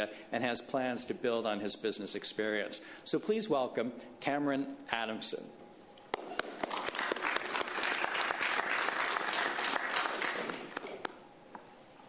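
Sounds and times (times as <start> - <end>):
audience applause: 6.2 - 11.2.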